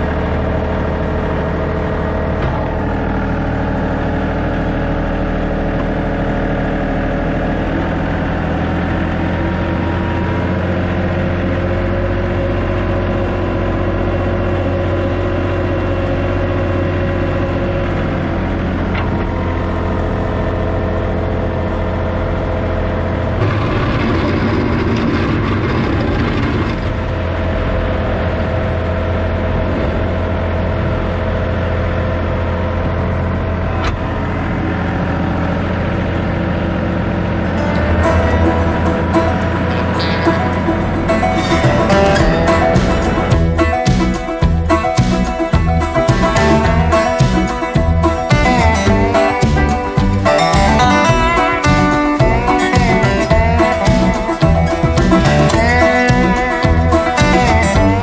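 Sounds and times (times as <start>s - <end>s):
tractor diesel engine running: 0.0s - 58.0s
loud rushing noise: 37.5s - 50.3s.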